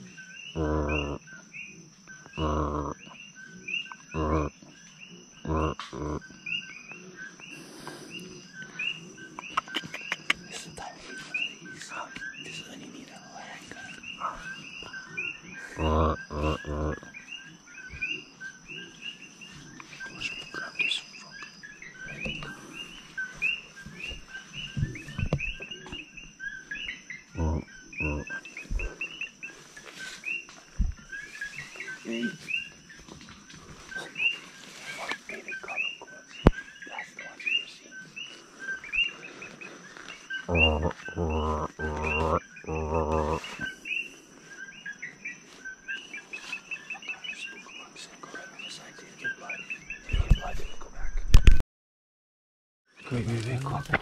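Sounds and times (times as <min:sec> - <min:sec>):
deep pitched animal calls: 0:00.0 - 0:10.6, 0:13.8 - 0:18.8, 0:20.2 - 0:29.5, 0:38.6 - 0:44.1
high chirping calls: 0:00.0 - 0:33.0, 0:33.8 - 0:51.0.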